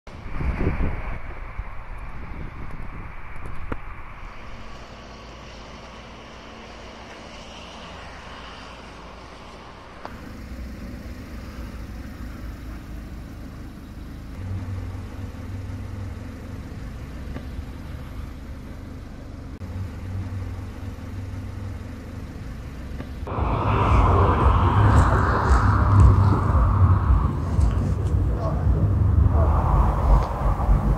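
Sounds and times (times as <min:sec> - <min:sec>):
road traffic noise: 0:00.1 - 0:30.9
low rumble: 0:23.2 - 0:30.9.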